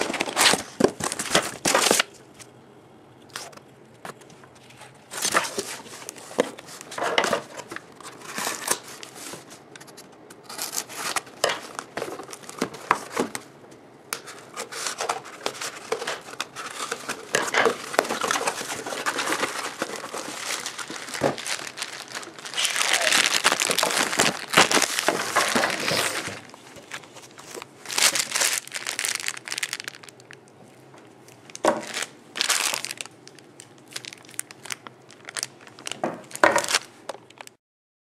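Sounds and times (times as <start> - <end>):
plastic bag crinkling: 0.0 - 2.1, 10.5 - 13.4, 14.3 - 37.6.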